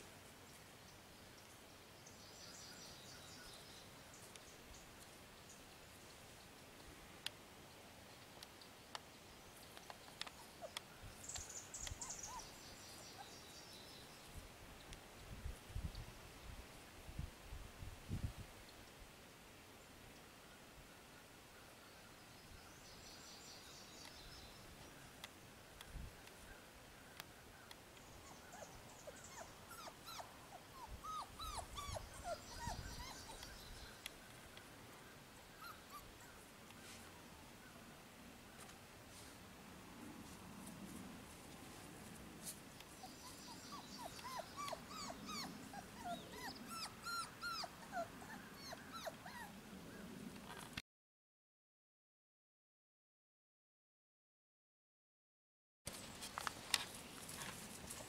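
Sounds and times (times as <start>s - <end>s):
small bird twittering: 11.2s - 13.4s
puppy whining: 11.9s - 12.5s, 28.2s - 33.8s, 35.6s - 36.4s, 43.0s - 49.6s.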